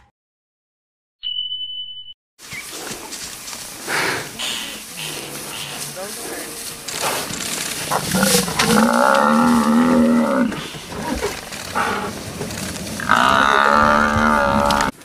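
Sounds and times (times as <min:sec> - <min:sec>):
buffalo bellowing: 0:03.8 - 0:15.0.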